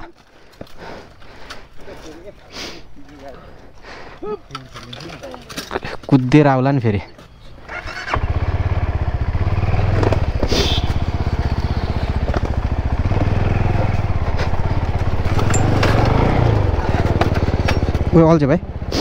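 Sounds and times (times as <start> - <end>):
motorcycle engine putter: 9.9 - 18.2.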